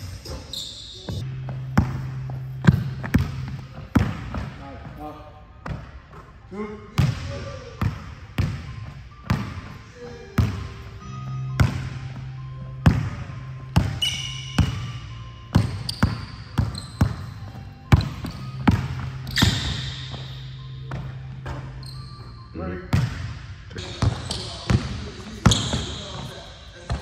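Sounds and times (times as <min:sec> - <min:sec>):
sneaker squeak: 0:00.0 - 0:04.6, 0:07.0 - 0:27.0
basketball bouncing on wood floor: 0:01.1 - 0:04.5, 0:12.8 - 0:14.0, 0:14.6 - 0:14.9, 0:15.5 - 0:20.3.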